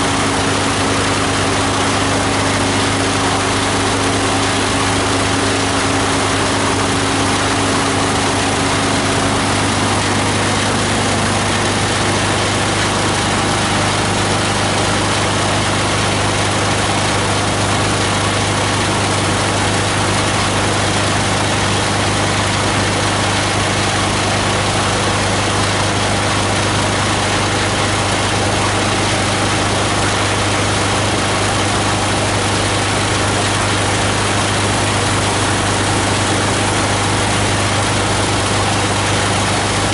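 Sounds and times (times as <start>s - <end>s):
higher hum: 0.0s - 19.4s
diesel engine running: 0.0s - 39.9s.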